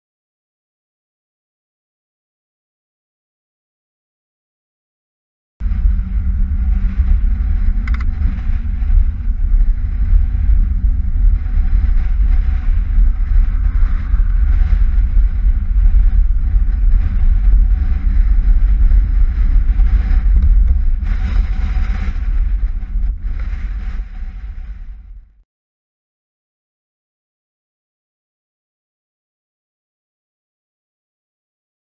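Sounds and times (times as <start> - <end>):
rolling road noise: 5.6 - 25.3
wind buffeting microphone: 5.6 - 25.4.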